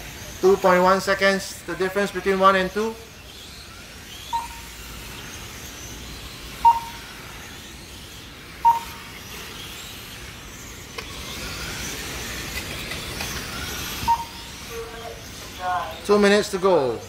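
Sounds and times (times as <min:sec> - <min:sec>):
rc truck motors whining: 0:00.0 - 0:17.0
short sharp beeps: 0:04.3 - 0:04.7, 0:06.6 - 0:07.0, 0:08.6 - 0:09.0, 0:14.1 - 0:14.5.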